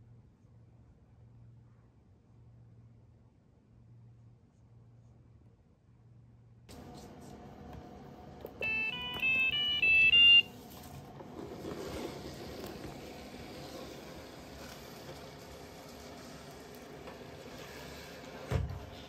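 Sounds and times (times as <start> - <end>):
robot mop short beeps: 8.6 - 10.5.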